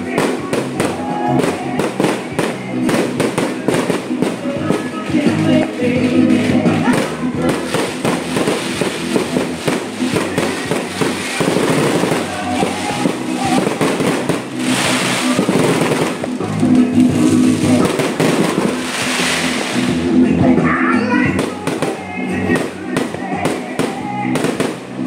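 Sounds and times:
fireworks hissing bursts: 0:00.0 - 0:20.3, 0:21.0 - 0:25.0
firecrackers popping and crackling: 0:00.0 - 0:20.5, 0:21.1 - 0:25.0
loud music: 0:00.0 - 0:25.0.

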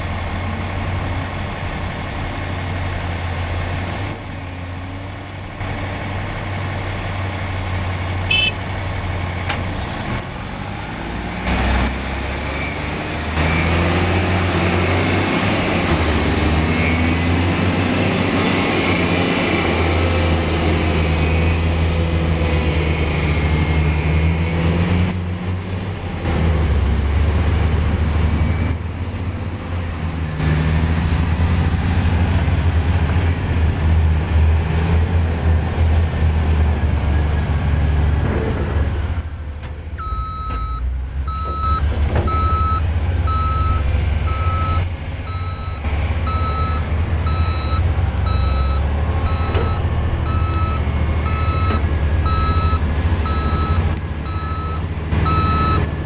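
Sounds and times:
heavy diesel truck engines: 0:00.0 - 0:56.0
reversing alarm beeps: 0:40.0 - 0:55.9.

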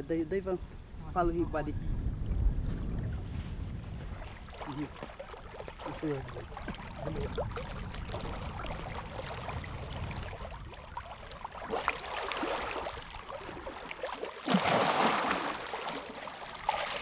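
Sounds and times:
water sloshing from wading: 0:02.8 - 0:17.0
fish thrashing heavy splash: 0:14.1 - 0:16.0.

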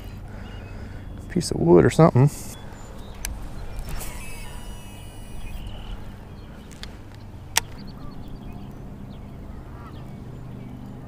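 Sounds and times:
fishing reel spool whirring: 0:02.5 - 0:09.1
reel engaging click: 0:03.1 - 0:06.0.

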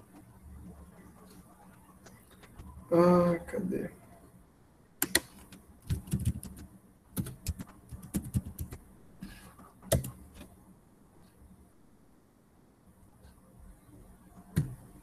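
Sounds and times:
keyboard typing: 0:05.0 - 0:08.8, 0:09.9 - 0:10.5.

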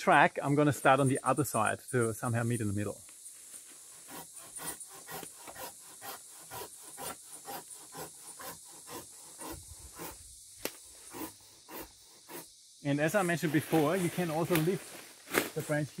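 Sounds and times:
hand saw cutting branch: 0:03.8 - 0:12.5.

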